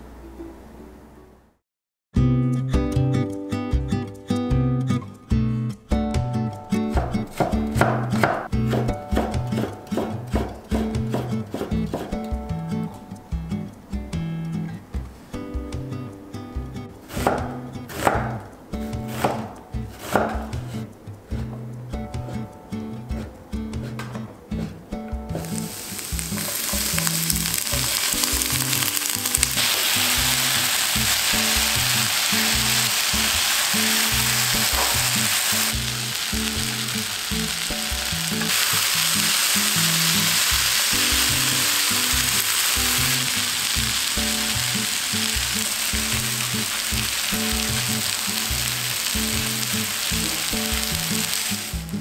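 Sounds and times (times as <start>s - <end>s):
potato sizzling in oil: 25.4s - 52.0s.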